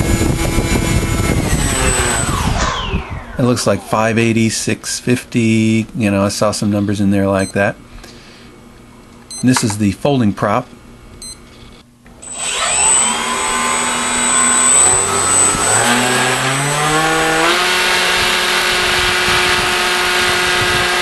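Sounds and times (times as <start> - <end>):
model airplane motor spinning: 0.0 - 4.0, 12.2 - 21.0
high thin whine: 0.0 - 5.8, 12.2 - 20.9.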